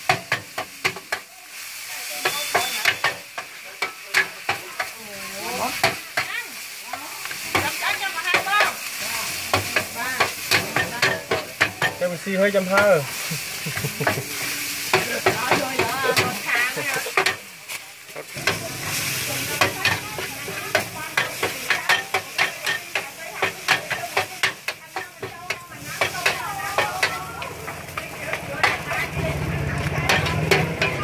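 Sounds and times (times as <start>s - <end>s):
frying sizzle: 0.0s - 31.0s
metal spatula scraping pan: 18.2s - 31.0s.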